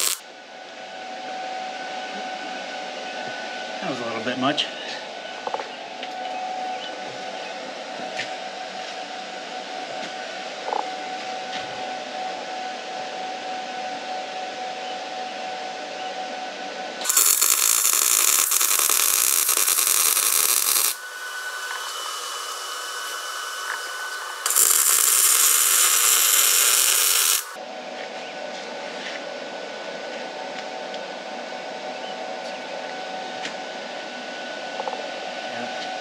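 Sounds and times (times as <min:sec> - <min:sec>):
welding arc crackling and hissing: 0:00.0 - 0:00.2, 0:17.0 - 0:27.6.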